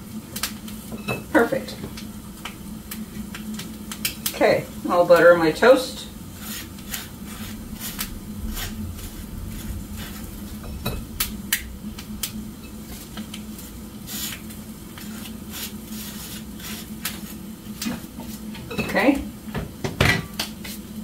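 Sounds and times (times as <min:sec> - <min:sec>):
low hum: 0:01.0 - 0:16.6
knife scraping toast: 0:06.4 - 0:09.1, 0:14.1 - 0:17.4.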